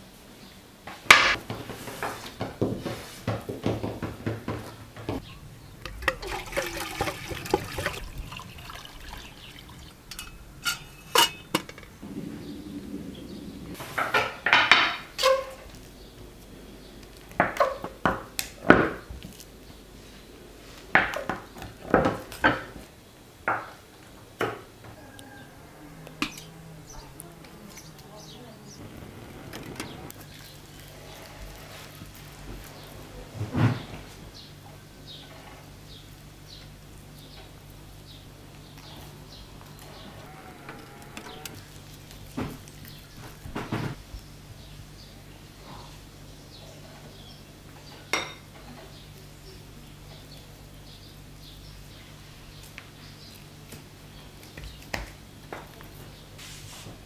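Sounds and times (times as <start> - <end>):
dough rubbing and scraping: 1.3 - 3.5, 5.9 - 9.9, 26.9 - 34.4, 55.9 - 57.0.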